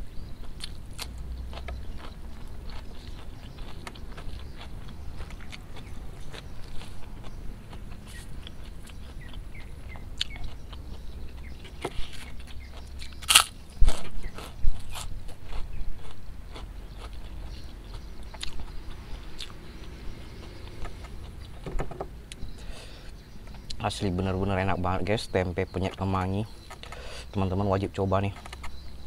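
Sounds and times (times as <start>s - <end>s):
food crunching: 0.3s - 21.6s
person chewing food: 0.3s - 21.6s.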